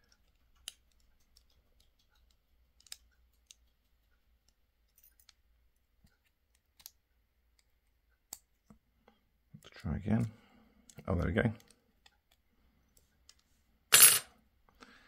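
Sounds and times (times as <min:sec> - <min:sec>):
small metallic clicks: 0:00.0 - 0:08.8.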